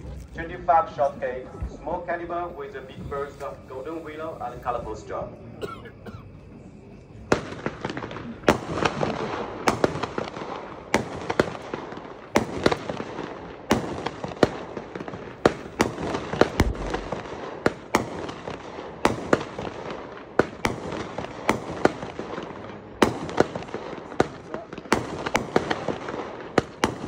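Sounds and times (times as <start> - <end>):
firework reports: 0.0 - 27.0
firework crackle: 7.2 - 27.0.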